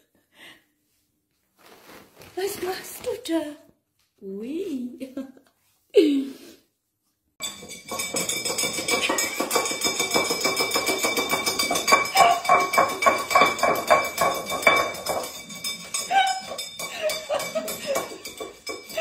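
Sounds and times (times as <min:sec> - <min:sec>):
ceramic bowl clattering on floor: 0:07.4 - 0:19.0.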